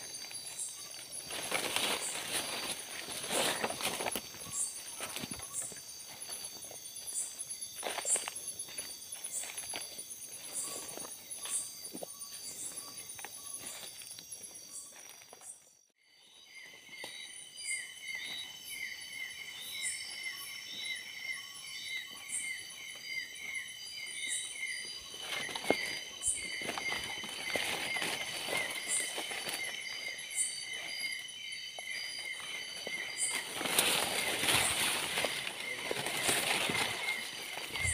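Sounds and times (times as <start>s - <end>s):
footsteps through undergrowth: 0.0s - 15.8s, 24.6s - 37.9s
insects trilling and buzzing: 0.0s - 37.9s.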